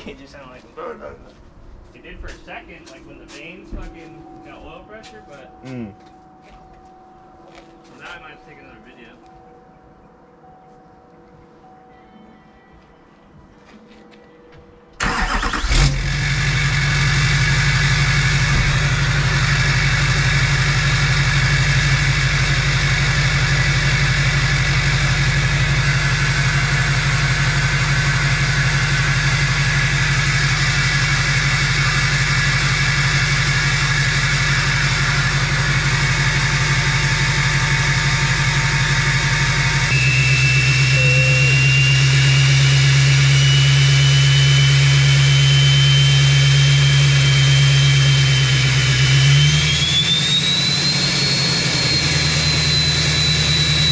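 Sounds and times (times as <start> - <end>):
diesel engine starting and idling: 15.0 - 53.9
thin turbo whistle: 39.2 - 48.6, 49.3 - 53.9.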